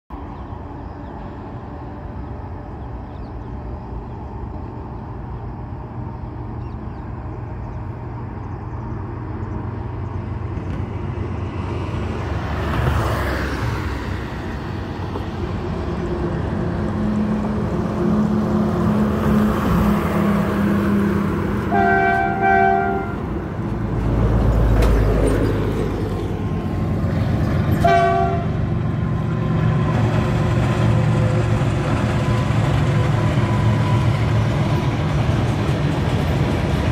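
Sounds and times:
train rumbling over bridge: 0.1s - 36.9s
locomotive horn: 20.0s - 23.4s, 27.7s - 28.8s.

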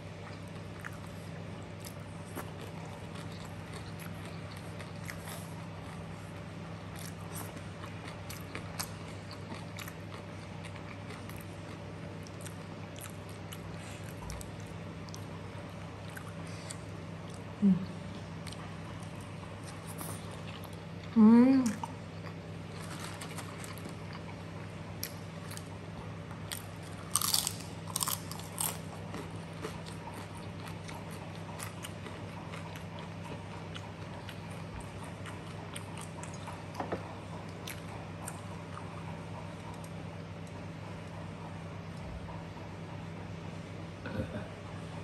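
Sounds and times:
person humming: 17.6s - 18.0s, 44.0s - 44.5s.

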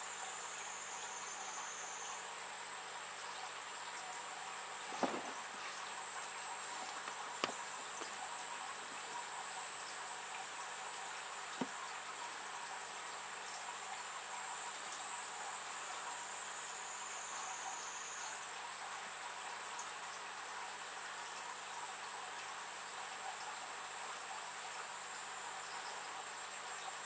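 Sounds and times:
soft hiss: 0.0s - 19.1s
faint taps: 4.9s - 5.8s, 6.8s - 8.2s, 11.6s - 11.8s.

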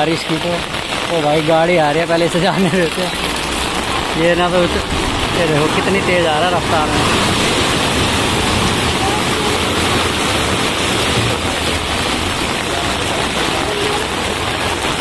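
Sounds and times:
car splashing through floodwater: 0.0s - 15.0s
water surging against kerb: 0.0s - 15.0s.

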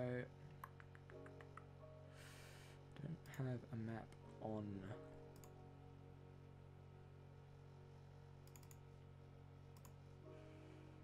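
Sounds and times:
steady low hum: 0.0s - 11.0s
faint computer clicks: 8.4s - 8.8s.

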